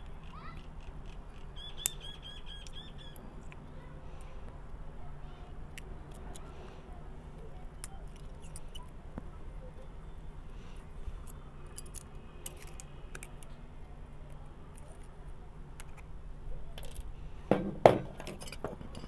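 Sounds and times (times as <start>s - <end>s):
pliers clicking and scraping metal: 5.7s - 6.5s, 7.6s - 9.0s, 11.2s - 13.6s, 15.8s - 16.1s, 16.8s - 17.2s, 18.2s - 19.0s
loud metal knocks: 17.5s - 19.0s.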